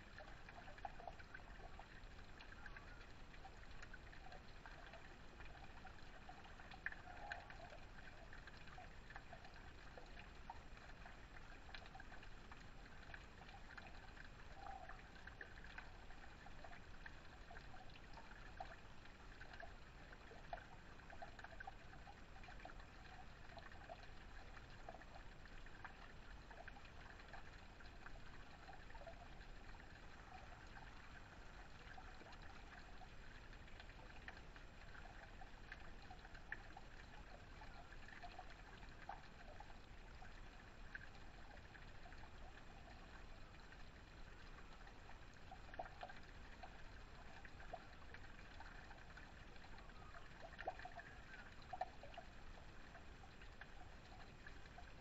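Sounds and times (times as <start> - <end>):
water trickling from waterfall spout: 0.0 - 55.0.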